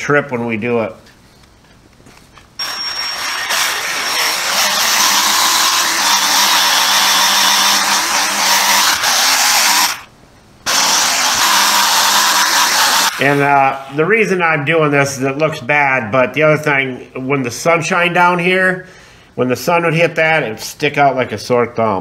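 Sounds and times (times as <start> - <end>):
polishing tool whirring: 2.6 - 10.1, 10.7 - 14.0.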